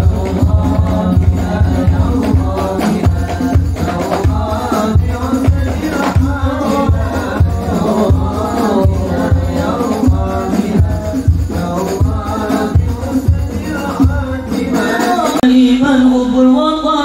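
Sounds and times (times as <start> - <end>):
jingling percussion: 0.0 - 15.4
steady drum beat: 0.0 - 15.4
men singing through microphones: 0.0 - 17.0.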